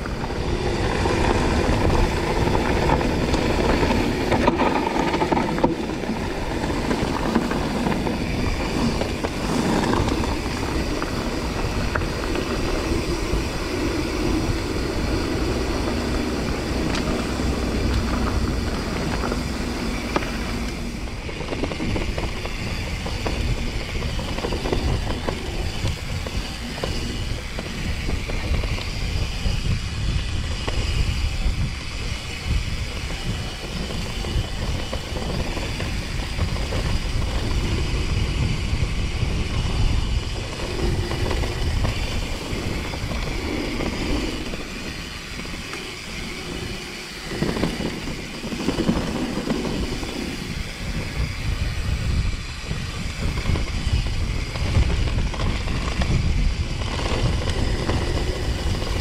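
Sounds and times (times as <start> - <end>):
bike knocks and rattles: 0.0 - 46.6
tyres and wind rumble: 0.0 - 59.0.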